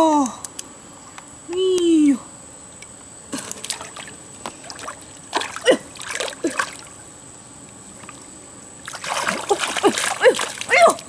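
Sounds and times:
hands splashing in muddy water: 8.8 - 11.0.

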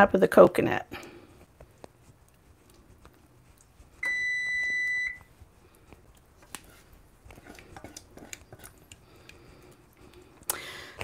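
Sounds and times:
high electronic appliance beep: 4.0 - 5.3
spoon scraping small saucepan: 6.5 - 9.0.

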